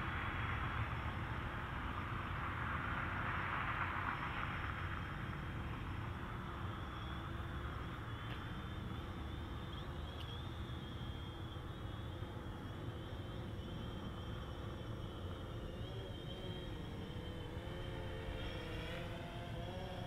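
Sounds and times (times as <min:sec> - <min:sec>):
drone propellers whining: 0:00.0 - 0:20.0
low outdoor rumble: 0:00.0 - 0:20.0.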